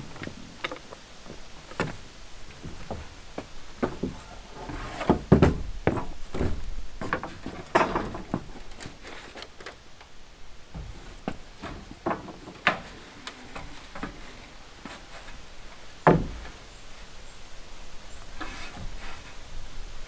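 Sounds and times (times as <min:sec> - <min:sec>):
board scraping: 0:00.0 - 0:09.6, 0:18.4 - 0:19.4
wooden board knocks and clunks: 0:00.0 - 0:09.7, 0:10.7 - 0:15.0, 0:16.0 - 0:16.6.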